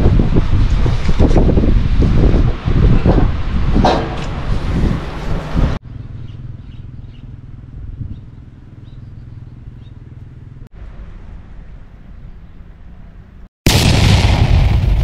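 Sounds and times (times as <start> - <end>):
wind noise on microphone: 0.0 - 5.8, 7.8 - 8.4.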